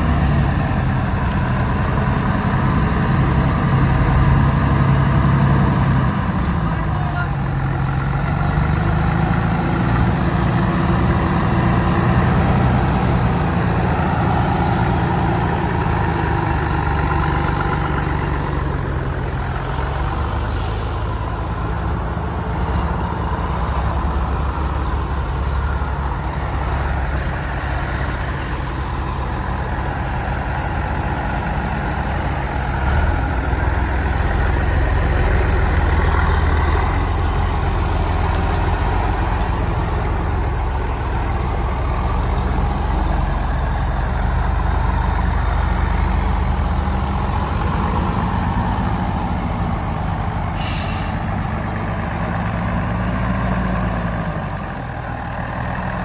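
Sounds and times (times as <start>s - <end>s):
diesel truck engine running: 0.0s - 56.0s
brief high hiss: 50.6s - 51.2s.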